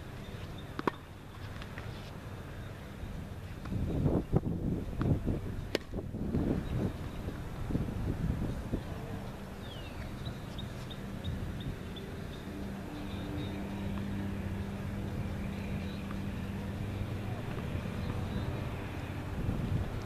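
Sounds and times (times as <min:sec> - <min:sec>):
low motor hum: 0:00.0 - 0:20.0
wind rumble: 0:03.6 - 0:20.0.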